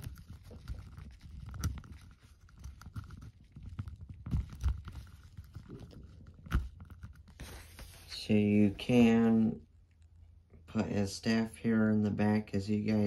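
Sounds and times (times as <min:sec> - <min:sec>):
small plastic clicks and scraping: 0:00.0 - 0:07.5.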